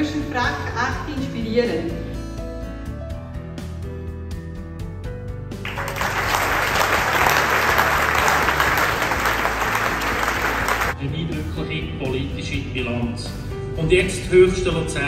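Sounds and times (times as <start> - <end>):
music playing: 5.5 - 14.8
audience applauding: 5.6 - 11.0.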